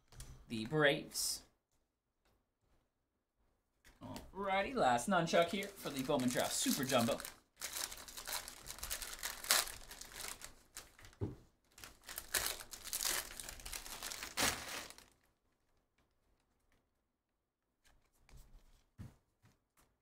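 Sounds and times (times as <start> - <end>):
foil wrapper tearing and crinkling: 5.7 - 11.1, 11.7 - 15.2.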